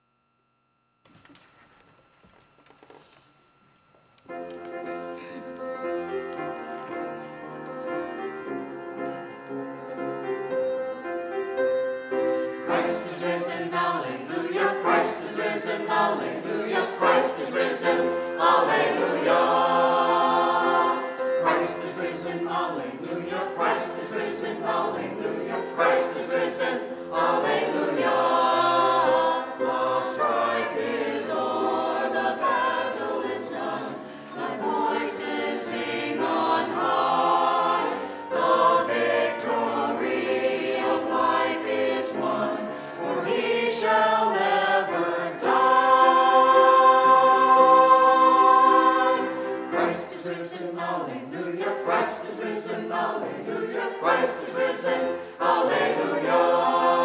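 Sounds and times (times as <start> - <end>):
choir singing: 12.1 - 57.0.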